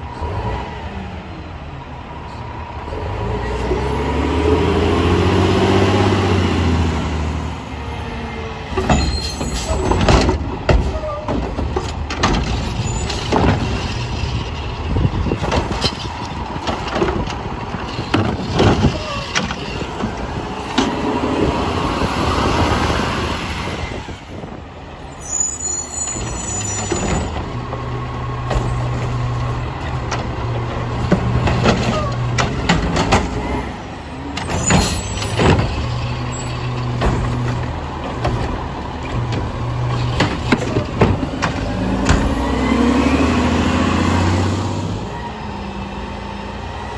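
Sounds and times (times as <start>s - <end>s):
loud bangs and clanks: 8.7s - 21.0s, 26.2s - 42.7s
garbage truck engine running: 26.8s - 46.9s.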